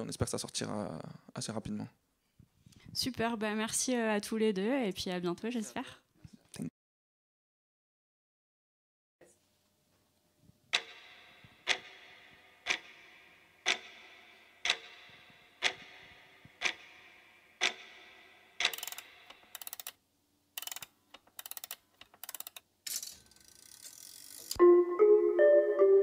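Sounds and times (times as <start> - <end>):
clock-like ticking: 10.7 - 20.0, 20.6 - 22.6
rapid clicking bursts: 18.6 - 20.0, 20.6 - 22.6.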